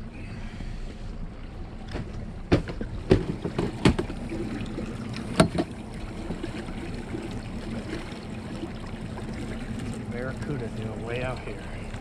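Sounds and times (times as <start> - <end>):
steady low hum: 0.0 - 12.0
water against boat hull: 0.3 - 12.0
knocks on fibreglass boat fittings: 5.4 - 5.7.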